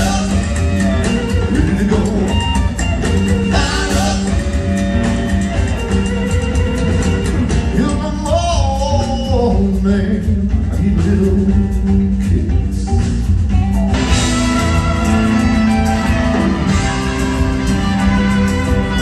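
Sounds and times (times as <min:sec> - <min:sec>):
electric guitar lead: 0:00.0 - 0:08.1, 0:12.9 - 0:19.0
bass line: 0:00.0 - 0:19.0
drum beat: 0:00.0 - 0:19.0.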